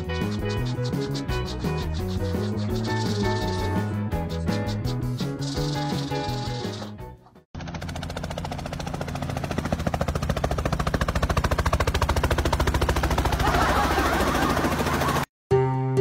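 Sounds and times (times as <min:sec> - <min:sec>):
fast even rattle: 0:00.0 - 0:09.2.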